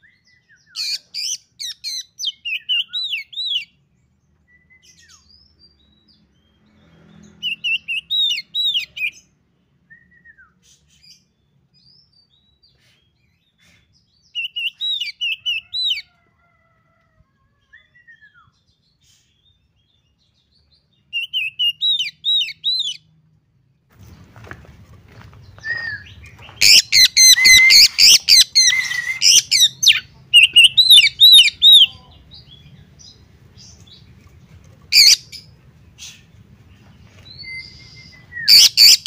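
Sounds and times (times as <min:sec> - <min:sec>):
bird singing whistled notes: 0:09.8 - 0:11.0, 0:21.1 - 0:23.0, 0:25.5 - 0:31.9, 0:37.2 - 0:39.0.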